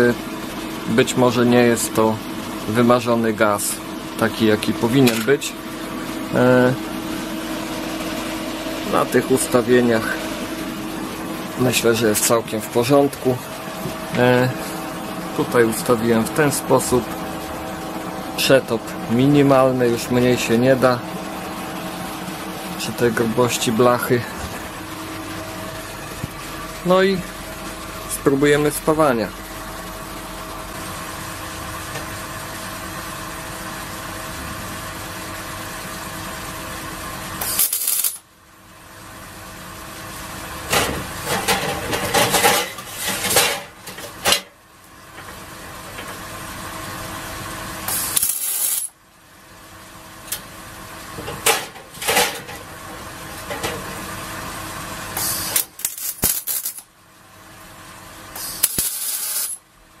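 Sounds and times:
welder machine hum: 0.0s - 60.0s
welding arc crackle: 37.4s - 38.2s, 47.9s - 49.0s, 55.2s - 56.9s, 58.3s - 59.6s.

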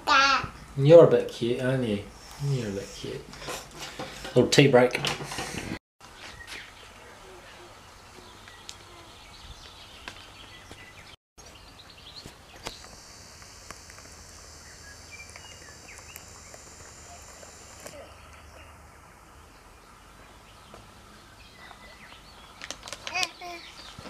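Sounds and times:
high-pitched hiss: 12.5s - 18.0s.

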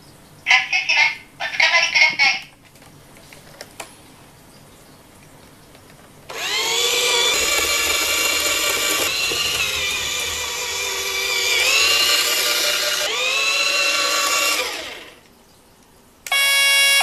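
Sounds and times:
toy electric motor whining: 6.3s - 15.2s, 16.3s - 17.0s.

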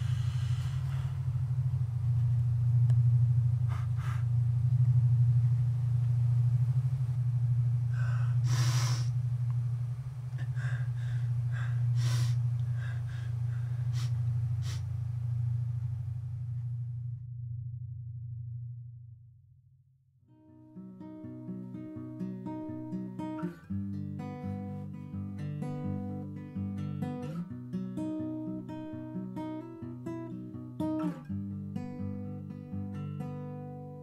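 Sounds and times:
person breathing sharply and gasping: 0.0s - 1.3s, 3.7s - 4.4s, 7.9s - 9.2s, 10.4s - 14.9s
steady low hum: 0.0s - 34.0s.

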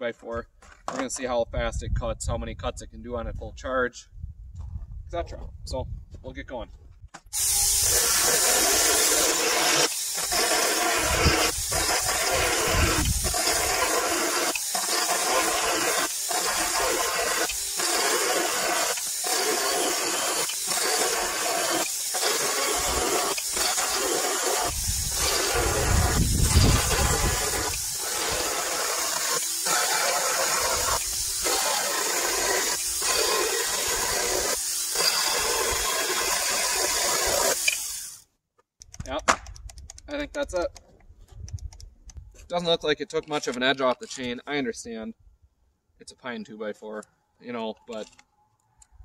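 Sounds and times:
electric chainsaw cutting wood: 7.3s - 38.2s.

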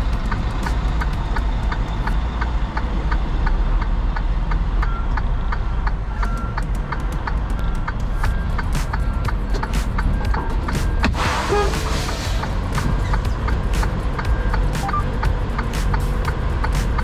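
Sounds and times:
background music with ticking beat: 0.0s - 17.0s
diesel truck engine rumble: 0.0s - 17.0s.

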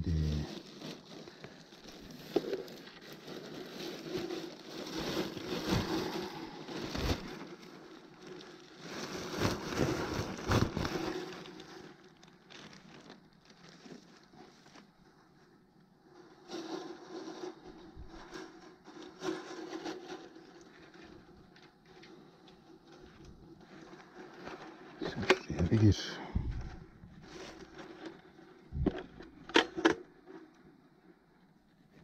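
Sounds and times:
cloth and bag rustling: 0.4s - 15.4s.

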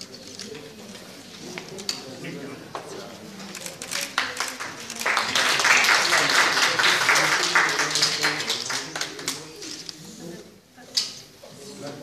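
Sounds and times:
people clapping: 3.6s - 9.8s.

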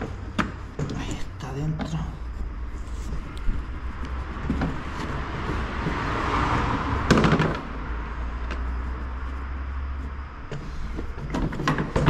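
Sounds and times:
plastic parts scraping: 10.5s - 12.0s.

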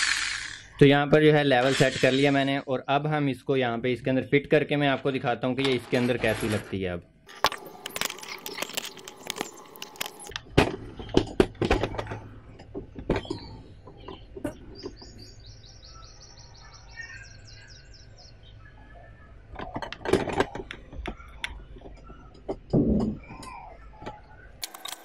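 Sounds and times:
metal parts knocking and clicking: 24.6s - 25.0s.

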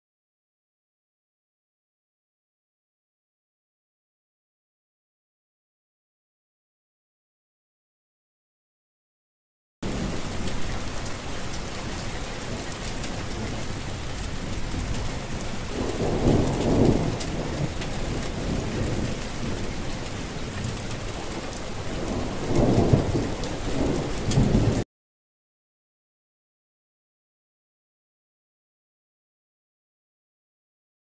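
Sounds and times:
low rumble of thunder: 9.8s - 24.8s
steady rain falling: 9.8s - 24.8s.

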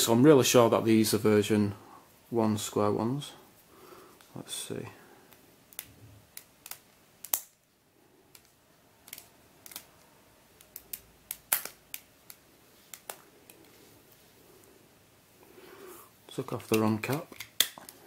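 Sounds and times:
plastic puzzle clicks and snaps: 5.3s - 7.6s, 8.3s - 13.2s, 16.6s - 18.0s.

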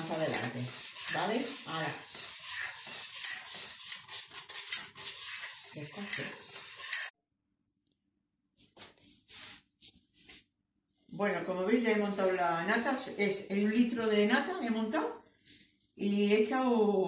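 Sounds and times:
spoon scraping metal pot: 0.0s - 7.2s.

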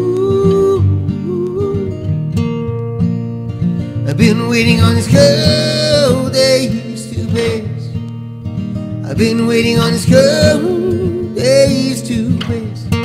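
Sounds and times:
acoustic guitar playing: 0.0s - 13.0s
man singing long notes: 4.1s - 7.9s, 9.1s - 13.0s.

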